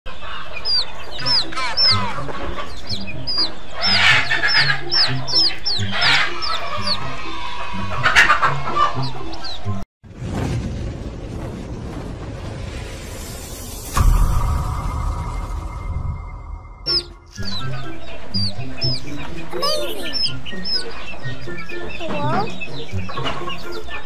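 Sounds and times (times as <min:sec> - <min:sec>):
background music: 0:00.1 - 0:09.8, 0:13.9 - 0:24.0
chicks peeping: 0:00.1 - 0:09.8, 0:16.9 - 0:24.0.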